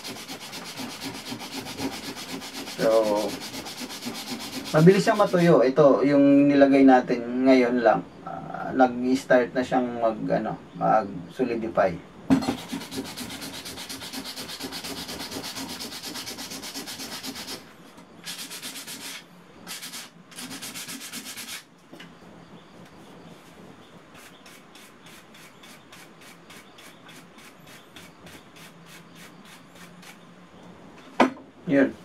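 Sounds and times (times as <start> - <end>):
sandpaper rubbing on wood: 0.0 - 5.6, 12.6 - 21.7, 24.2 - 30.2.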